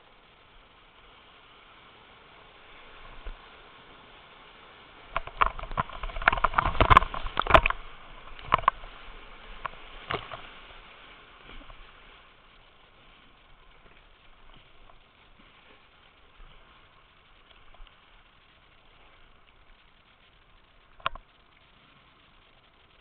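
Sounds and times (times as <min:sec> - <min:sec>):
rushing water: 0:00.0 - 0:23.0
water splashing over kayak: 0:00.0 - 0:23.0.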